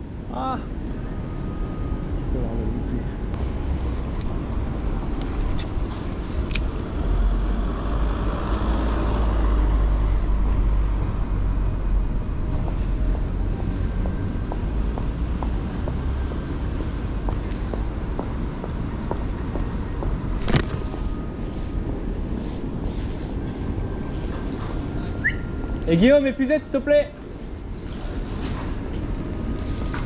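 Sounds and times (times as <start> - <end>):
road traffic rumble: 0.0 - 30.0
car passing: 6.4 - 11.6.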